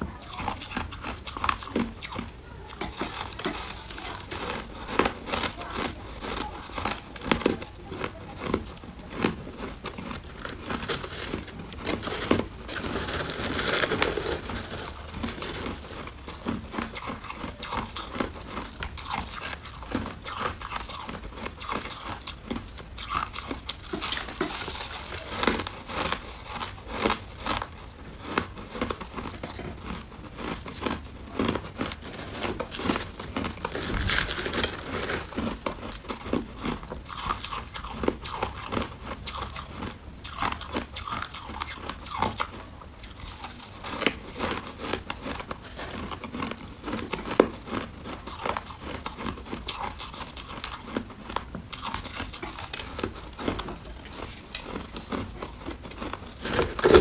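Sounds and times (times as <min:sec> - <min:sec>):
ice crunched and chewed: 0:00.0 - 0:57.0
ice handled in plastic glove: 0:10.4 - 0:15.8, 0:33.6 - 0:35.6, 0:56.4 - 0:57.0.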